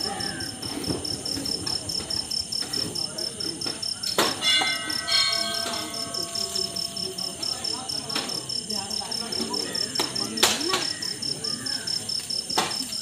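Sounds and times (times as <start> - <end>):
cricket chirping: 0.0 - 13.0
metal temple bell ringing: 4.3 - 9.2.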